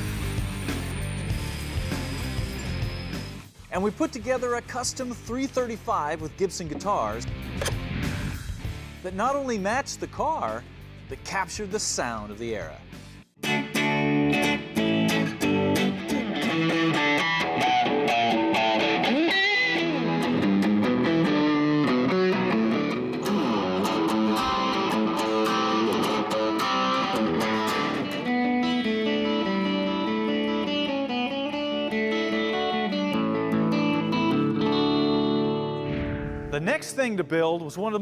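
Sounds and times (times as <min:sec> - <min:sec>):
electric guitar lead line: 0:00.0 - 0:03.6, 0:13.4 - 0:36.6.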